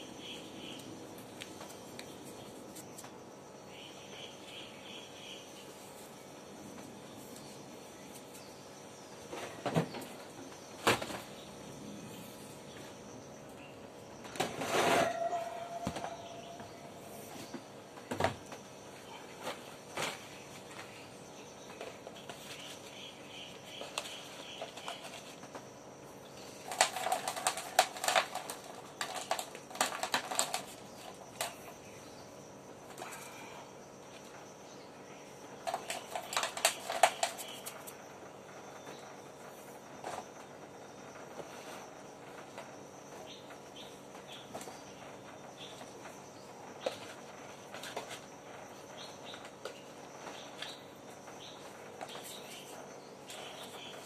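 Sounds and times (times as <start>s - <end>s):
powder rattling into plastic tub: 26.5s - 31.6s, 35.6s - 37.8s.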